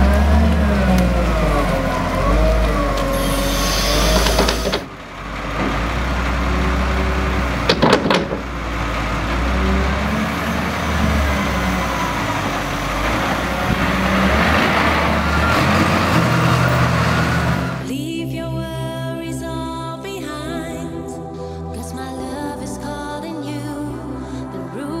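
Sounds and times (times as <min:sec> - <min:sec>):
wavering whine: 0:00.0 - 0:05.2
diesel engines under load: 0:00.0 - 0:17.9.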